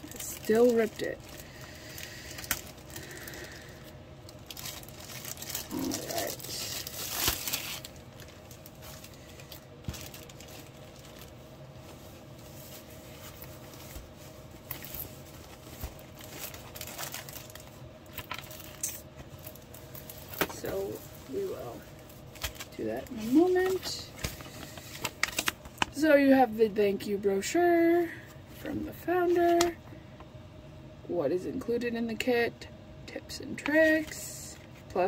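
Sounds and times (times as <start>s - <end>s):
plastic bag crinkling and rustling: 0.0s - 26.0s.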